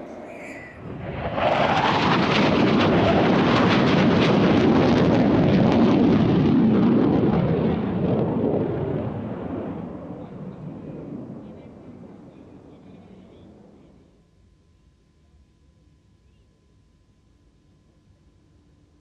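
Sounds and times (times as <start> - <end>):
jets passing in afterburner: 0.0 - 9.7.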